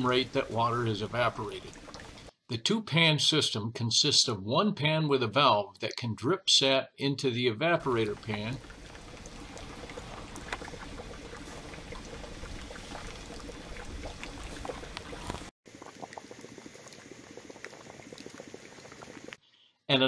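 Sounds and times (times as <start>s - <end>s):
sap boiling and bubbling: 0.0s - 2.4s, 7.8s - 19.7s.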